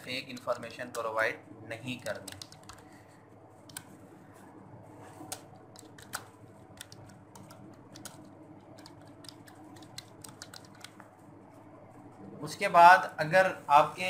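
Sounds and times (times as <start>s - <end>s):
steady low hum: 0.0s - 14.0s
keyboard typing clicks: 2.0s - 2.9s, 3.7s - 3.9s, 5.3s - 11.1s.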